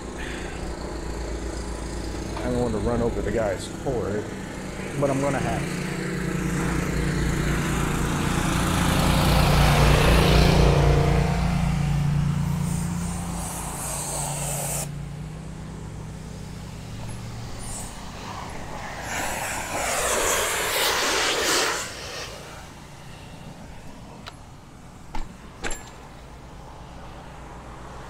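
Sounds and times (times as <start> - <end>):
car passing: 0.0 - 28.0
motor-driven power tool running: 11.9 - 23.6.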